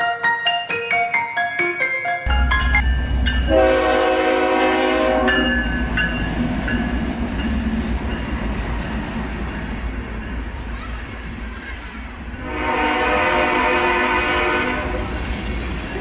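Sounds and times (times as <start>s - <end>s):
freight train rumbling: 2.3s - 16.0s
locomotive air horn blast: 3.4s - 5.6s, 12.4s - 15.2s.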